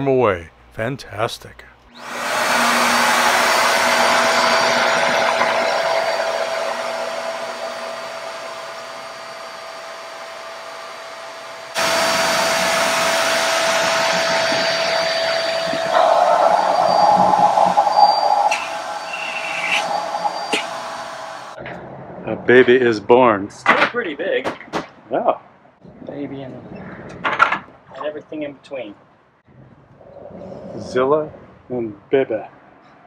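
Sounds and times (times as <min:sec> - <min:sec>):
electric air pump running: 0:01.9 - 0:21.6.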